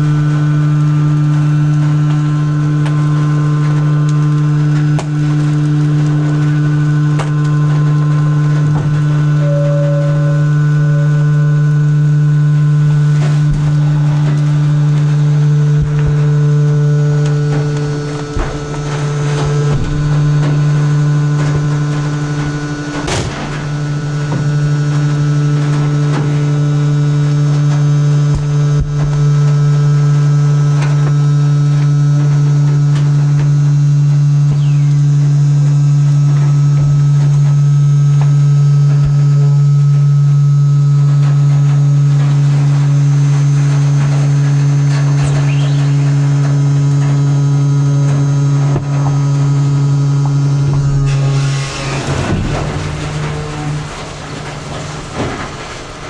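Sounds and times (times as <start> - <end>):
plastic crackling: 0.0 - 9.4, 11.7 - 30.1
hydraulic drive humming: 0.0 - 56.0
trash bags cracking: 12.2 - 29.6.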